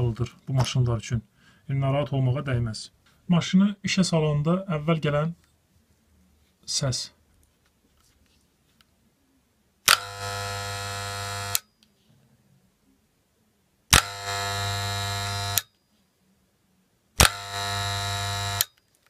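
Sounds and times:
hair clipper buzzing: 9.9s - 11.6s, 13.9s - 15.7s, 17.2s - 18.7s.

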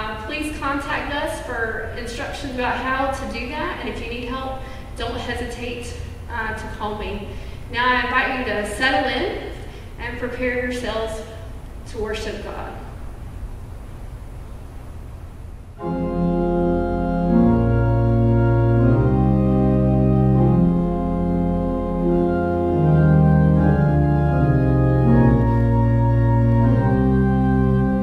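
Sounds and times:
church organ playing chords: 15.8s - 28.0s.

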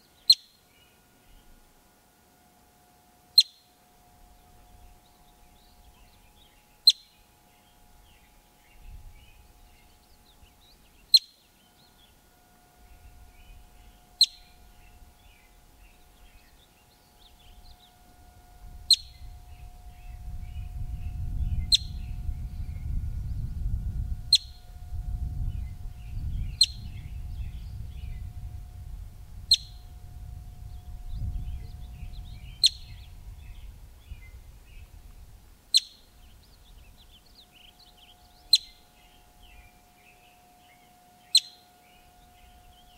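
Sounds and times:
marmot alarm chirps: 3.4s - 3.7s, 4.8s - 7.2s, 8.8s - 11.4s, 13.3s - 15.0s, 18.9s - 19.4s, 21.6s - 22.1s, 24.3s - 24.6s, 29.5s - 29.8s, 32.3s - 33.0s, 35.7s - 36.1s, 36.7s - 39.7s, 40.7s - 41.7s.

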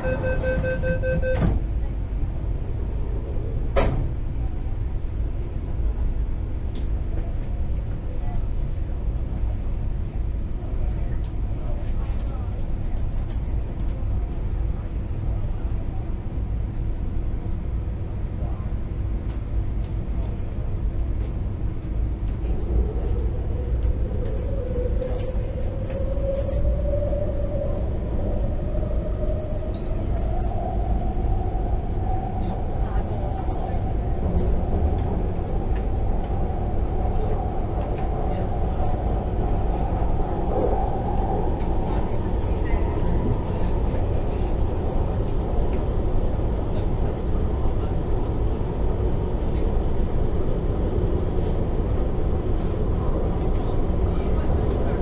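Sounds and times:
door-closing warning beeps: 0.0s - 1.6s
electric train humming: 0.0s - 3.5s
train wheels rumbling on track: 0.0s - 55.0s.

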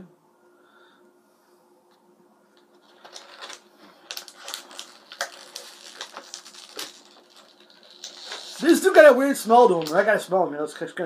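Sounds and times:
plastic packaging crackling: 2.7s - 10.2s.

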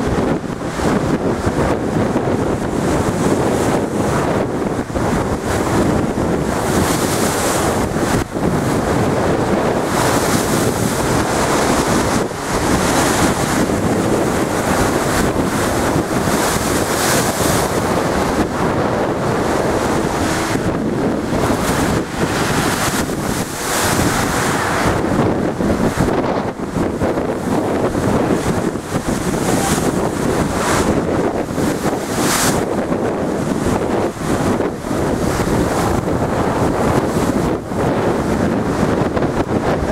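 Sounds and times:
stormy sea breaking against wall: 0.0s - 39.9s
wind buffeting microphone: 0.0s - 39.9s.

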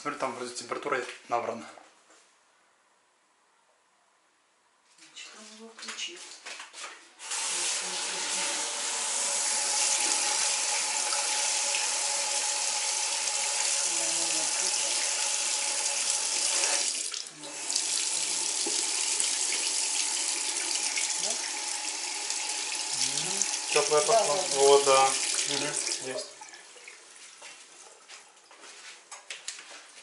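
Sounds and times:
tap water splashing into basin: 9.7s - 11.9s, 16.4s - 28.0s.

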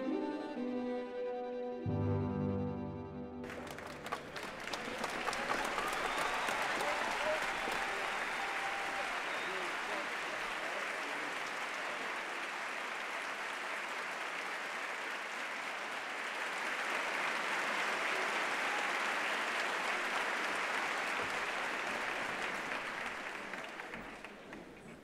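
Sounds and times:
audience applauding: 3.4s - 25.0s.

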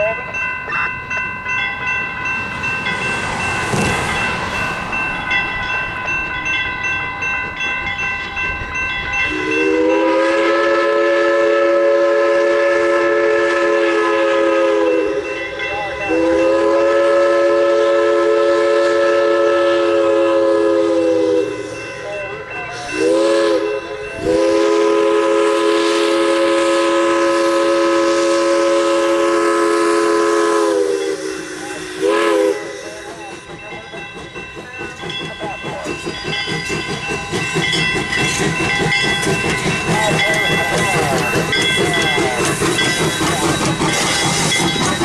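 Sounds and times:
crossing signal bell ringing: 0.0s - 11.2s, 14.6s - 25.4s, 30.2s - 45.0s
locomotive exhaust and running gear: 0.0s - 45.0s
steam locomotive whistle blasts: 9.2s - 22.0s, 22.7s - 33.2s, 36.0s - 45.0s.

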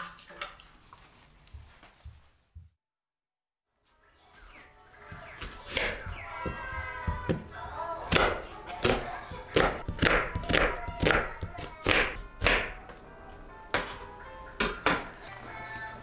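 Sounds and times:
soft background music: 3.7s - 16.0s
knife chopping on wooden board: 8.1s - 12.8s.

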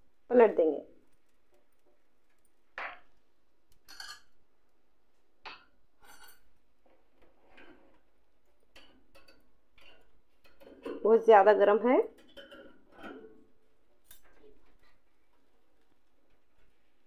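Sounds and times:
clinks on metal oven rack: 3.8s - 4.3s, 8.7s - 11.0s, 12.1s - 13.5s.

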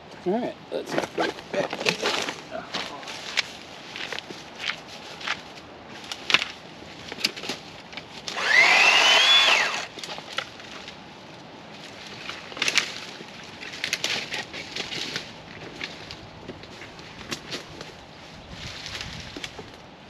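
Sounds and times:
chainsaw motor revving: 8.3s - 10.0s
twigs snapping underfoot: 12.1s - 18.0s.

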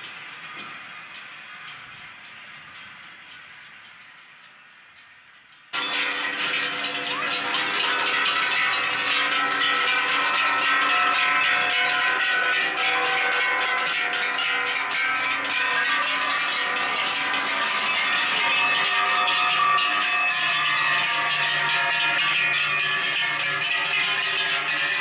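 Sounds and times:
cowbells clanging: 5.8s - 25.0s.

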